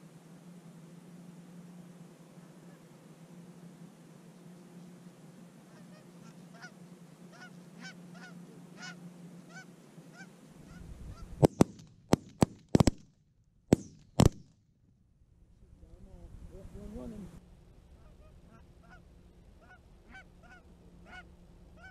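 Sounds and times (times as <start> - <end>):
geese honking: 1.7 - 11.5, 17.9 - 21.9
shotgun blasts: 11.4 - 13.0, 13.7 - 14.5.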